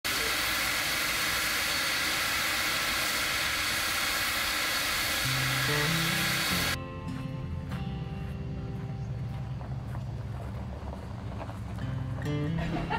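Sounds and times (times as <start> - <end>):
steam hissing from locomotive: 0.0 - 6.8
music notes: 5.3 - 9.9.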